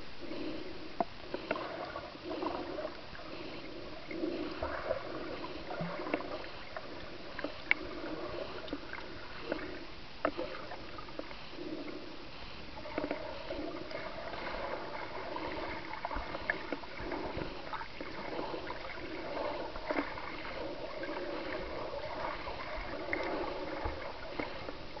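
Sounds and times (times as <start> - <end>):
muffled underwater water wash: 0.0 - 25.0.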